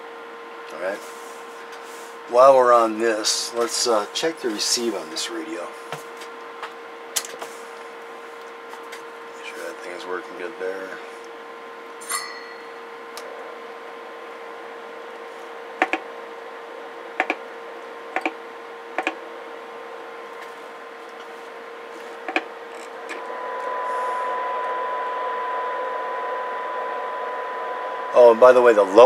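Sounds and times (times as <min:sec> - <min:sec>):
steady test tone: 0:11.8 - 0:29.0
radio receiver hiss: 0:21.3 - 0:29.0.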